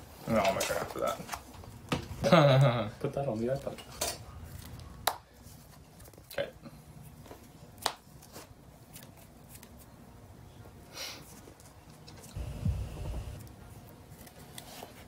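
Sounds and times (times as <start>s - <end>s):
faint low hum: 11.7s - 14.3s.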